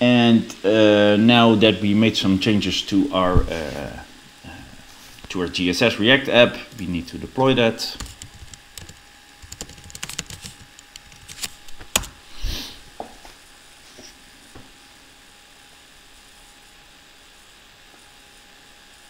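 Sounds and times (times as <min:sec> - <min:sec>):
faint steady hiss: 0:00.0 - 0:08.1
computer keyboard typing: 0:08.0 - 0:12.1.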